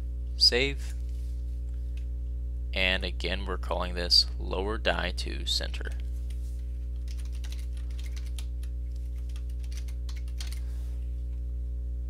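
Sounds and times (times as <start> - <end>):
low electrical hum: 0.0 - 12.0
typing on keyboard: 7.0 - 10.6.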